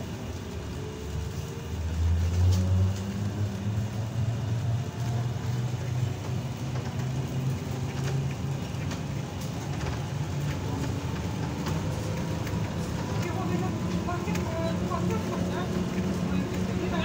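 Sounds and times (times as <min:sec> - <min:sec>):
trolleybus motor humming: 0:00.0 - 0:17.0.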